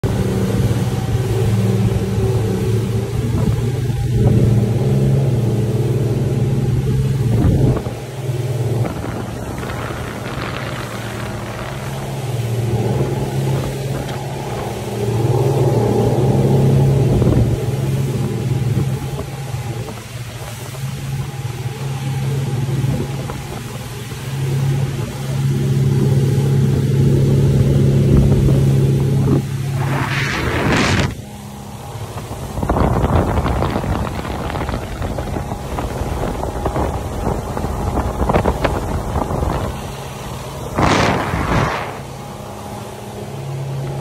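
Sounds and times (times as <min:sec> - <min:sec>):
motorboat engine humming: 0:00.0 - 0:44.0
wind: 0:00.0 - 0:44.0
water hissing: 0:39.2 - 0:42.5.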